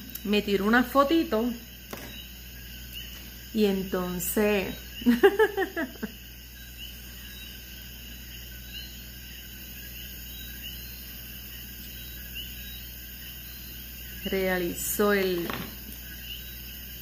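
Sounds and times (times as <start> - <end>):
frogs calling: 0.0 - 17.0.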